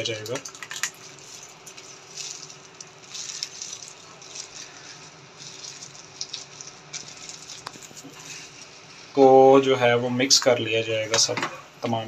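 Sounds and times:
yogurt pouring and splattering: 0.0 - 8.6
faint steady hum: 0.0 - 12.0
plastic bag rustling: 0.3 - 9.6.

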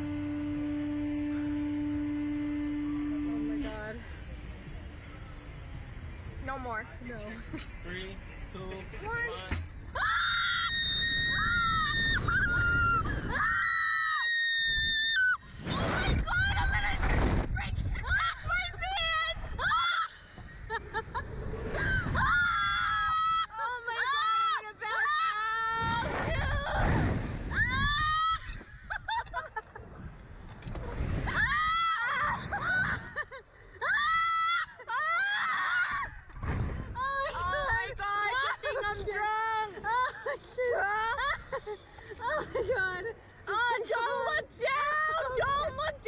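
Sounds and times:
low rush of noise: 0.0 - 34.0
women screaming: 10.0 - 15.4, 21.8 - 29.2, 31.3 - 36.2
women laughing: 19.6 - 22.3, 28.4 - 30.0, 31.5 - 35.3, 37.0 - 43.2
woman screaming in terror: 31.3 - 33.2.

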